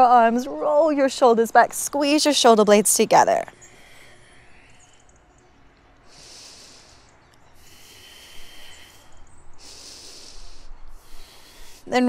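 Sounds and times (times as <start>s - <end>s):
woman breathing slowly: 3.5s - 12.0s.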